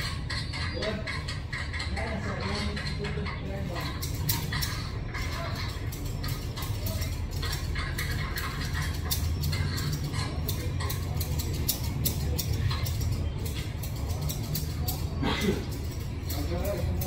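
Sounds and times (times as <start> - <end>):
steady low hum: 0.0 - 17.0
scissors snipping hair: 3.6 - 17.0.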